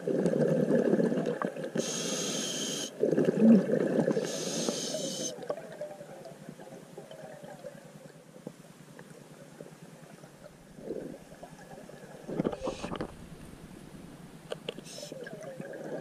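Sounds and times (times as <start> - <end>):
bubbling exhaled air: 0.0 - 5.4, 10.8 - 13.2
regulator hissing: 1.8 - 2.9.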